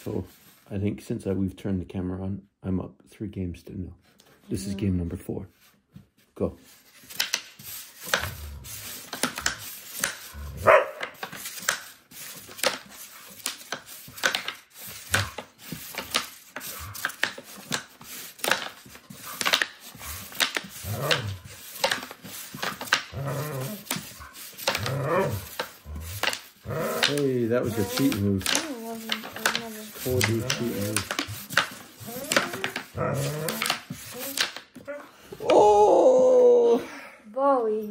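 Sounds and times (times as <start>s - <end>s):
wooden pucks knocking on board: 7.1s - 10.3s, 10.9s - 35.6s.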